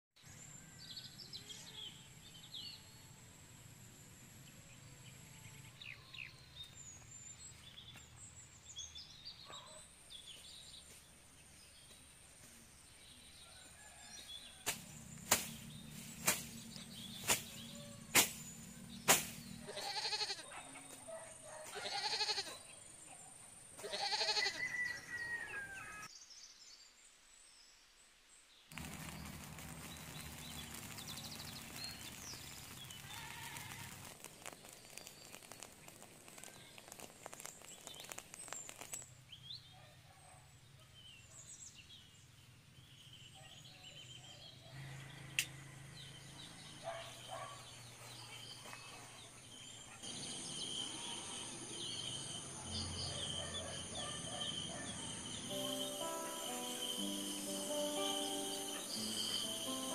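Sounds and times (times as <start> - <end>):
goat bleating: 19.7 - 20.4, 21.7 - 22.6, 23.8 - 24.6
crickets trilling: 28.8 - 39.1, 50.1 - 59.9
birds chirping: 28.8 - 59.9.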